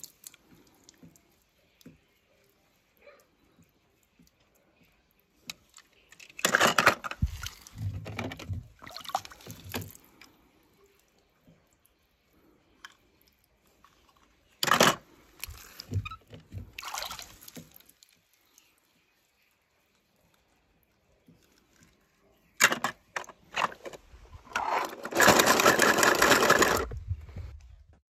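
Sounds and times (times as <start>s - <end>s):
water splashing in plastic tub: 6.8s - 10.2s, 14.9s - 18.6s.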